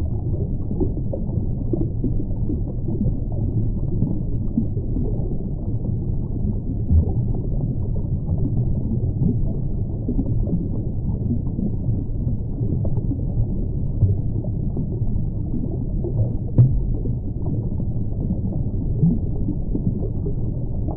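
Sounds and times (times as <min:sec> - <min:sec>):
muffled underwater churning: 0:00.0 - 0:20.9
underwater thump: 0:06.9 - 0:07.4, 0:16.5 - 0:17.3.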